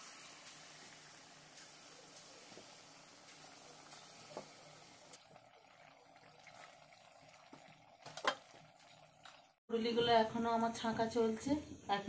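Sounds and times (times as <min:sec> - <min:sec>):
fritters deep-frying in oil: 0:00.0 - 0:09.6.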